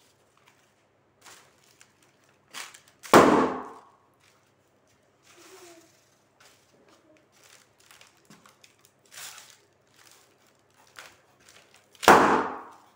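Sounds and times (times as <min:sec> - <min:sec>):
foil balloons crinkling: 0:00.0 - 0:12.9
shuffling footsteps: 0:04.1 - 0:08.6.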